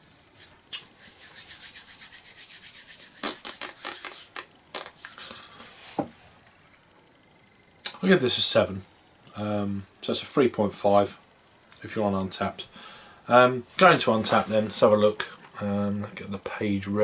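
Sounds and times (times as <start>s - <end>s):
hands rubbing together: 0.0s - 6.0s.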